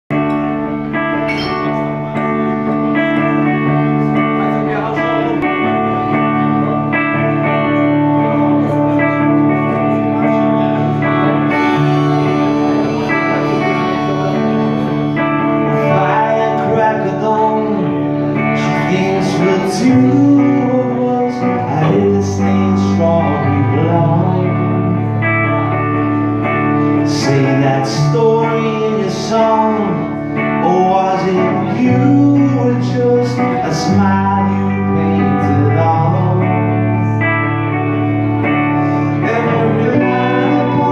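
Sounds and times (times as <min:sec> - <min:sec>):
electric guitars playing: 0:00.1 - 0:40.9
man singing into microphone: 0:06.7 - 0:25.7, 0:26.8 - 0:38.0, 0:38.8 - 0:40.9.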